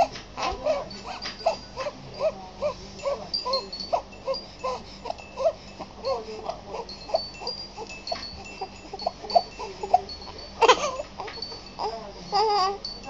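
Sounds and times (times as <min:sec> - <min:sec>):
baby whimpering and fussing: 0:00.0 - 0:12.8.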